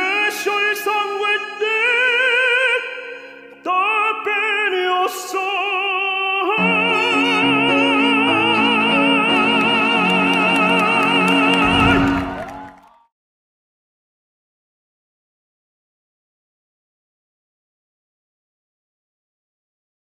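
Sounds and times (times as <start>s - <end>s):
operatic tenor singing: 0.0s - 12.7s
orchestral accompaniment: 6.6s - 12.8s.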